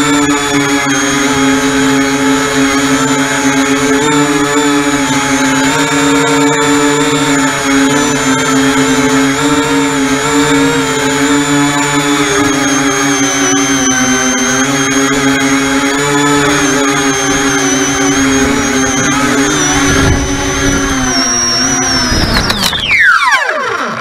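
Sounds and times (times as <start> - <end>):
model aircraft motors whining: 0.0 - 24.0.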